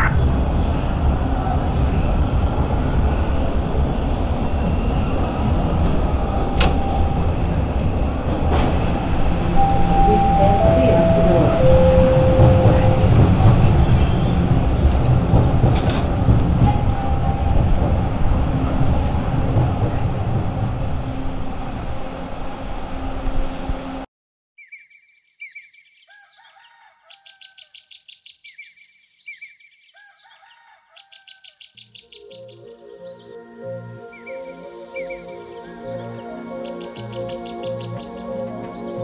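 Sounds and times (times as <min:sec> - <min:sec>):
subway train rumbling: 0:00.0 - 0:24.1, 0:32.1 - 0:39.0
music: 0:09.4 - 0:18.2, 0:32.3 - 0:39.0
songbirds calling: 0:24.6 - 0:33.4, 0:34.1 - 0:39.0.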